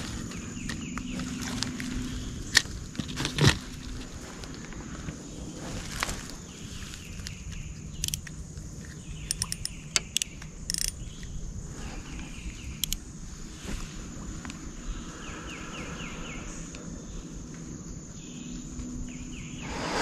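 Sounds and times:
high-pitched insect drone: 14.9s - 20.0s
low rumble: 19.6s - 20.0s.

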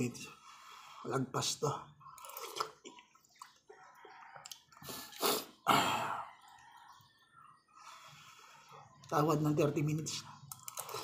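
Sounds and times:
slurping noodles: 2.1s - 6.6s.

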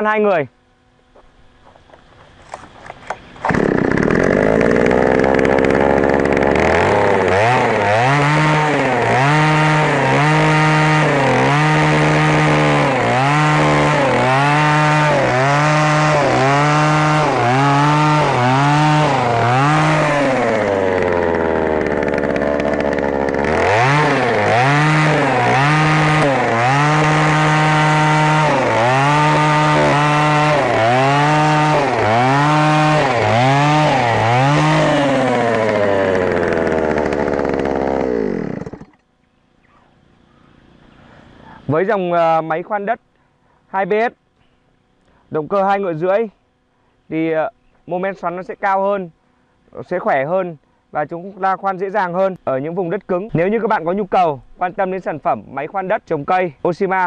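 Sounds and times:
two-stroke auger engine revving: 3.4s - 39.0s.

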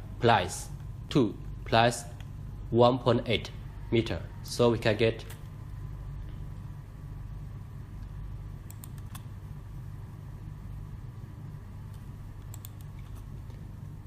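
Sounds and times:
steady low hum: 0.0s - 14.0s
computer mouse clicks: 8.6s - 9.3s, 11.9s - 13.6s.

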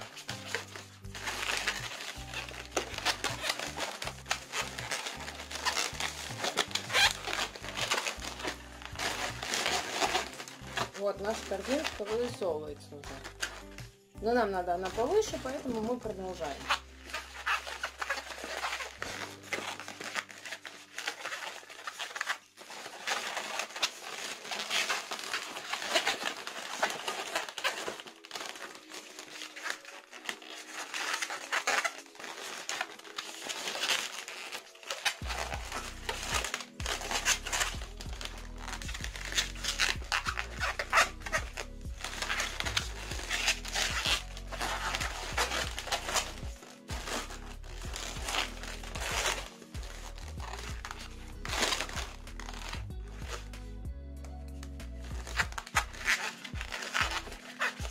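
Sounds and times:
background music: 0.0s - 57.9s
balloons rubbing and crinkling: 0.0s - 57.9s.

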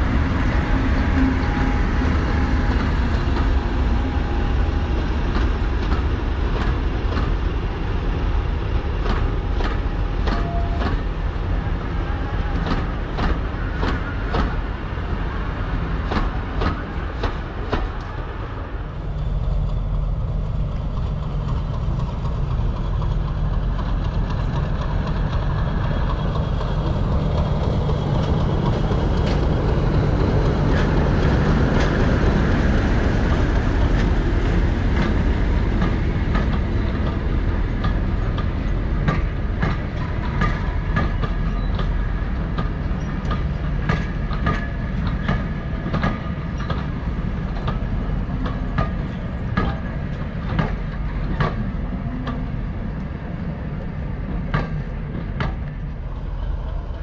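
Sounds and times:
low diesel engine drone: 18.6s - 40.8s.

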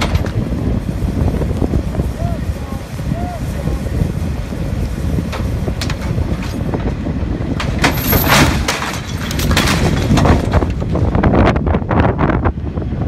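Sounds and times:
wind rumbling on microphone: 0.0s - 13.0s
metallic clanks and scrapes: 7.6s - 10.9s.

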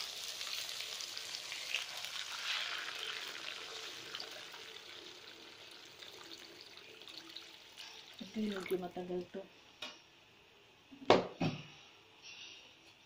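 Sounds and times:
water poured into hot pan: 0.0s - 9.3s
oil sizzling and splashing: 0.0s - 9.4s.

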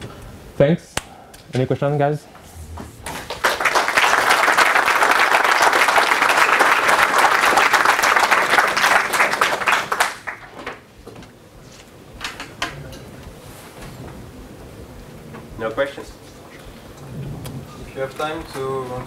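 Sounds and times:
audience applauding: 3.1s - 10.8s.

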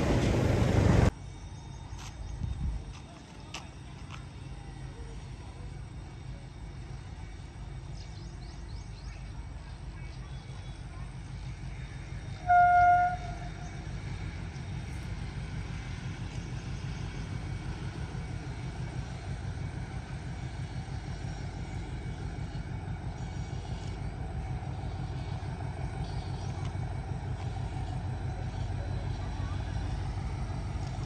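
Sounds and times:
train rumbling: 0.0s - 31.0s
locomotive horn toot: 12.4s - 13.7s.

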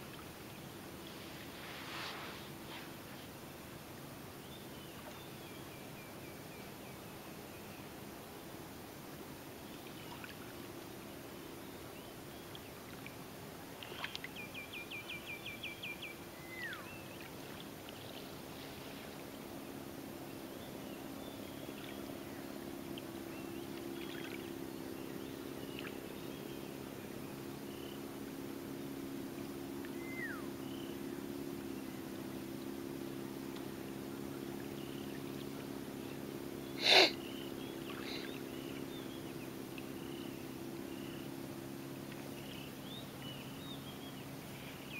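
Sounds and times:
low steady hum: 0.0s - 44.9s
birds singing: 13.8s - 18.4s, 19.6s - 29.0s, 29.8s - 44.9s
person sniffling: 36.8s - 37.2s.

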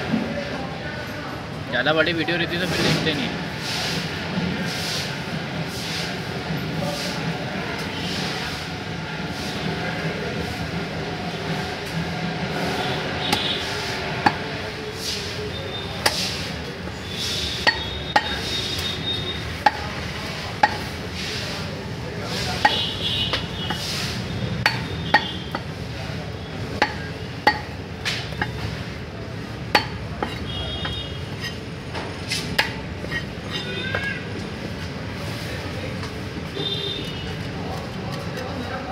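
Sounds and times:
cleaver chopping on wooden block: 24.6s - 25.7s, 26.8s - 28.6s.

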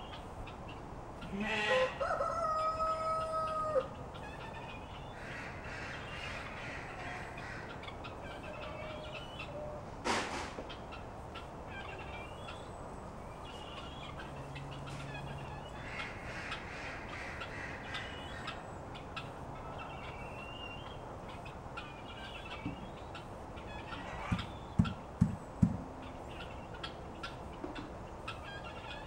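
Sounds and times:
poultry calling: 0.0s - 9.9s, 10.6s - 29.0s
loud dull thumps: 24.3s - 25.9s.

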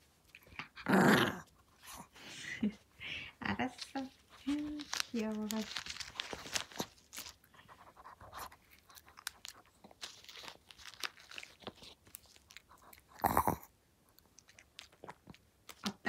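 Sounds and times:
dog chewing crunchy treat: 4.1s - 16.0s.

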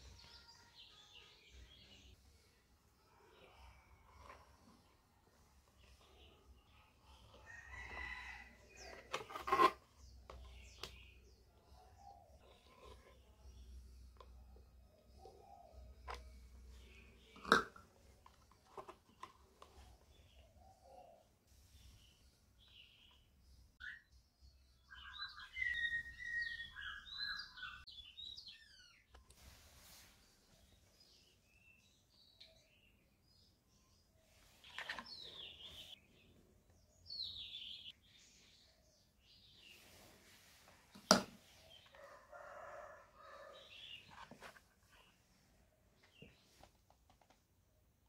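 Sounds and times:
songbird chirping and whistling: 24.8s - 29.1s.

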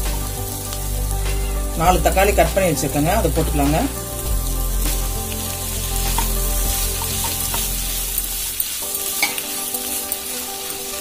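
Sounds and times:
low rumble: 0.0s - 8.6s
vegetables sizzling in butter: 0.0s - 11.0s.

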